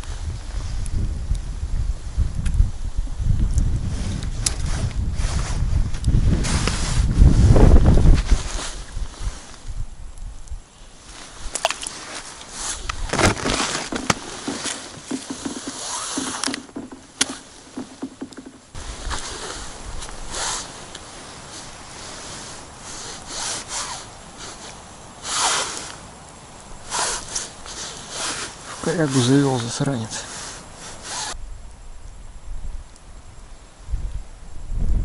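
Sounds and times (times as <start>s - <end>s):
clothing rustling: 6.4s - 9.6s, 11.0s - 23.0s
fishing gear clicks and scrapes: 11.5s - 21.1s.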